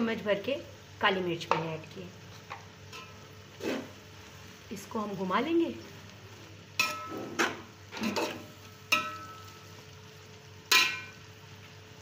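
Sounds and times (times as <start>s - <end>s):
low frying sizzle: 0.0s - 12.0s
stirring vegetables in metal pot: 6.7s - 9.8s.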